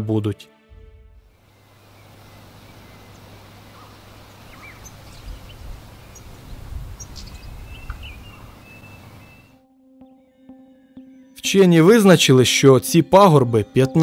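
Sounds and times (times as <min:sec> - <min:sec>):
finch chirping: 0:01.5 - 0:09.6.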